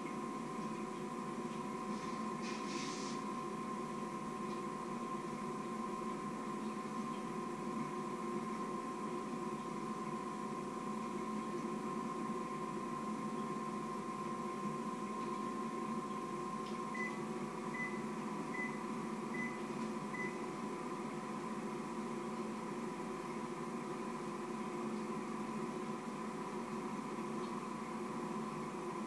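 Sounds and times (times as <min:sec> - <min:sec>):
microwave oven humming: 0:00.0 - 0:29.0
short high microwave beeps: 0:16.9 - 0:20.5.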